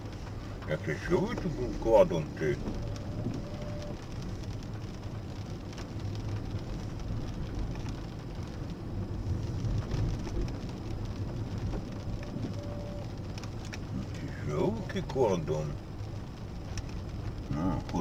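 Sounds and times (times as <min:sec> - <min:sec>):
engine and tyres rumbling: 0:00.0 - 0:18.0
hiss of wet road and rain: 0:00.0 - 0:18.0
faint ticks: 0:16.6 - 0:18.0.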